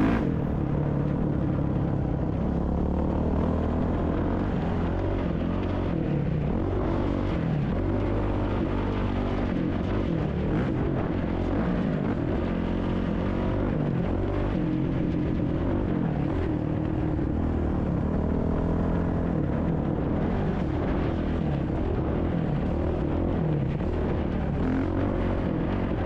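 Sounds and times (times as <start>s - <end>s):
dirt bike engine revving: 0.0s - 1.6s.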